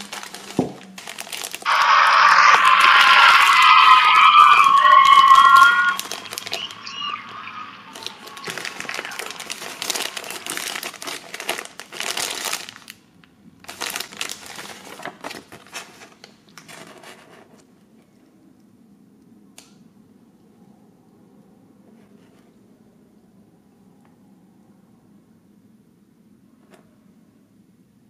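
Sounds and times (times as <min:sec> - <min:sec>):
plastic packaging crinkling: 0:00.0 - 0:01.7, 0:05.2 - 0:07.2, 0:07.9 - 0:17.2.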